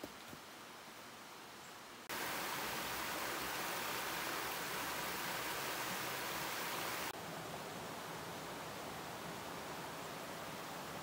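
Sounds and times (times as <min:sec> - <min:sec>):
waterfall cascading over rocks: 0:02.1 - 0:07.2.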